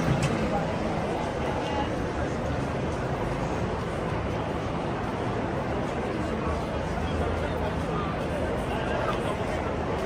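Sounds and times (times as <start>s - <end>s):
crowd chatter: 0.0s - 10.0s.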